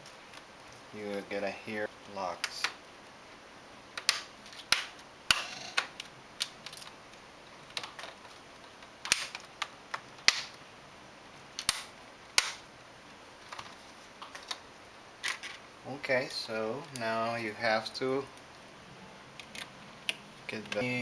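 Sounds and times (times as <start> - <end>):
plastic clips snapping into place: 9.0 - 10.6.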